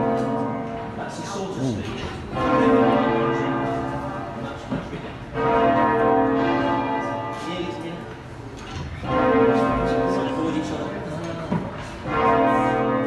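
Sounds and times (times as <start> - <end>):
church bells ringing in changes: 0.0 - 1.0, 2.3 - 4.4, 5.3 - 7.6, 9.0 - 10.6, 12.0 - 13.0.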